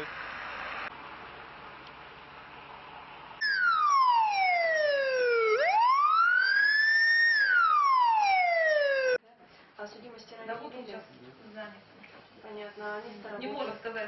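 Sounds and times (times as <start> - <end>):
faint street noise: 0.0 - 6.3, 7.7 - 14.0
police siren wailing: 3.4 - 9.2.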